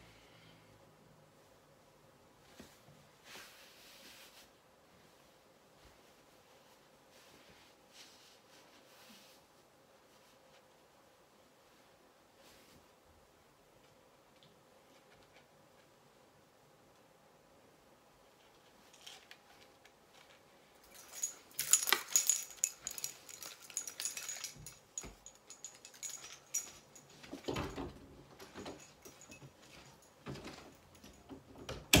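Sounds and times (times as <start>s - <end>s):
clothing rustling: 2.4s - 11.0s, 18.4s - 31.3s
light metallic jingling: 20.8s - 31.5s.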